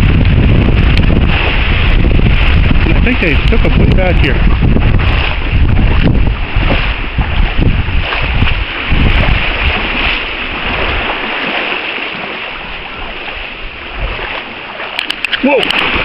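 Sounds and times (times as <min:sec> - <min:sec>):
water washing: 0:00.0 - 0:16.0
wind buffeting microphone: 0:00.0 - 0:16.0.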